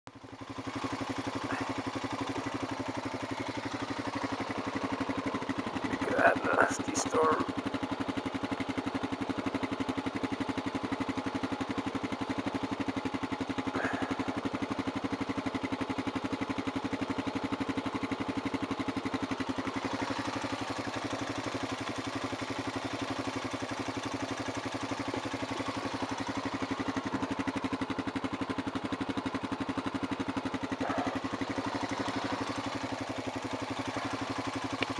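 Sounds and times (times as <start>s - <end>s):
quad bike engine droning: 0.1s - 34.9s.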